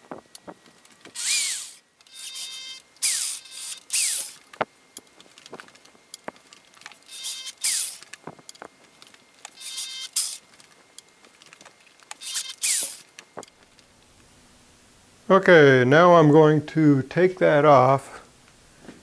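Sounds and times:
drill drilling into metal: 1.1s - 4.5s, 7.0s - 8.1s, 9.5s - 10.4s, 12.2s - 13.1s
small clicks and knocks: 3.9s - 9.6s.

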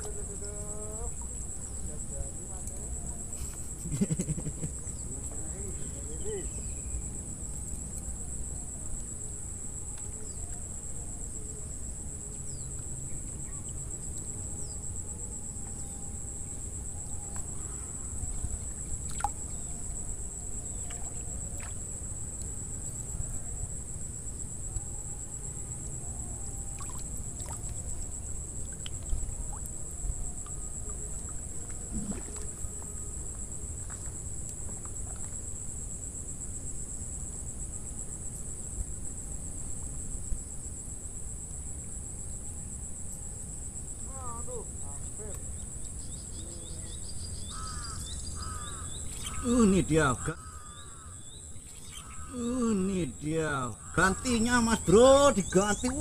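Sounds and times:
insect chorus trilling: 0.0s - 56.0s.

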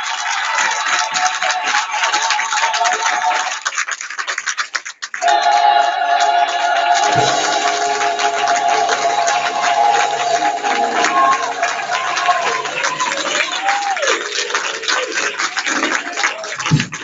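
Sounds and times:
hand clapping: 0.0s - 17.0s
choir and congregation singing: 5.2s - 13.7s.

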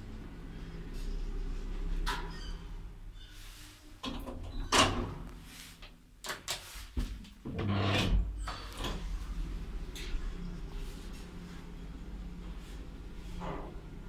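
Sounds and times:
elevator doors clunking and sliding: 4.0s - 5.3s
steady low hum: 8.8s - 14.0s.

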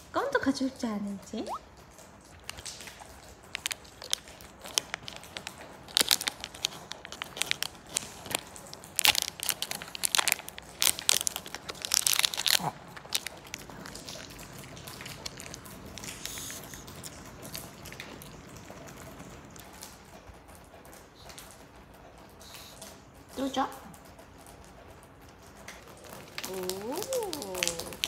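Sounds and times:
rain hissing: 1.3s - 23.2s, 26.0s - 28.0s
dog chewing: 1.5s - 21.8s, 25.4s - 28.0s
plastic wrapper crackling: 2.2s - 20.0s, 25.8s - 28.0s.

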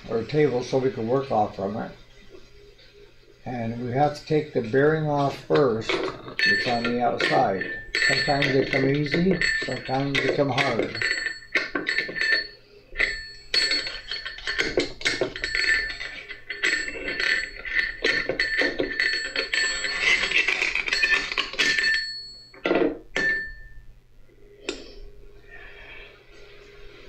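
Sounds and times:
metal tool clinking on bearing: 5.2s - 22.6s.

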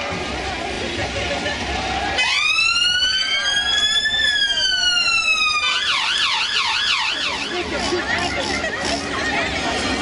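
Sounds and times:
emergency vehicle siren: 2.2s - 7.7s.

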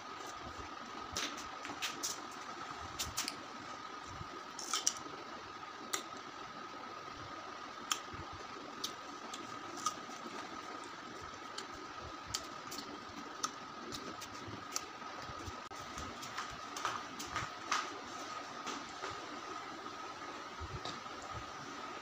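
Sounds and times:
person biting and chewing: 4.6s - 5.1s, 8.8s - 10.9s.

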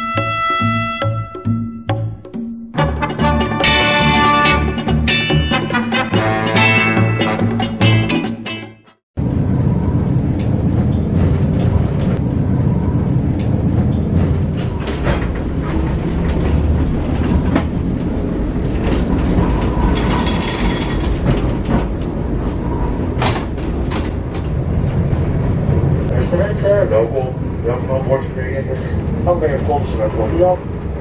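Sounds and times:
tram wheels rumbling: 9.2s - 31.0s
wheels clicking over rails: 13.1s - 26.1s.

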